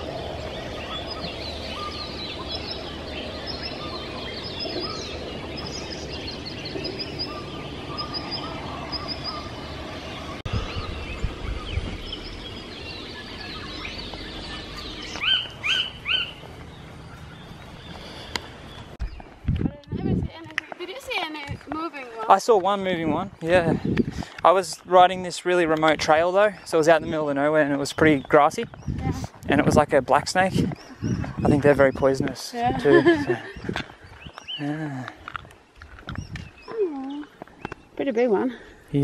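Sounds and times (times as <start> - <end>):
birds dawn chorus: 0.0 - 19.4, 23.3 - 38.9
loud sweeping bird calls: 0.0 - 19.4.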